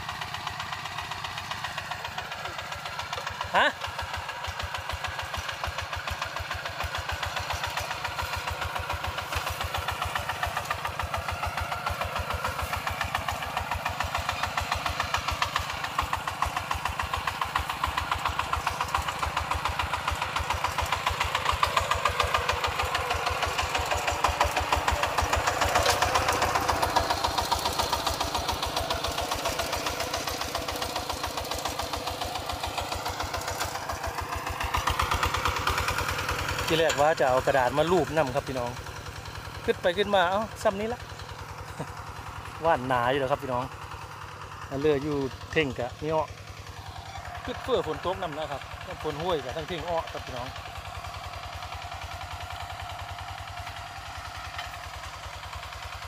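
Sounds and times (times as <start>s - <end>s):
diesel tractor engine chugging: 0.0s - 56.0s.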